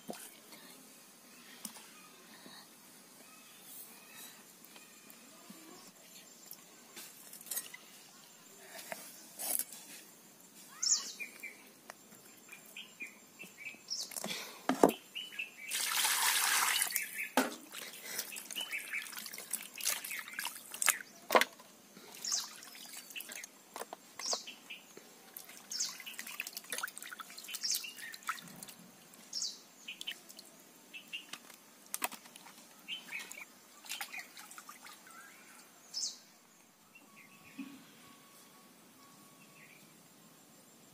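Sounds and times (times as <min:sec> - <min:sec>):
bird chirps: 0:10.7 - 0:11.7.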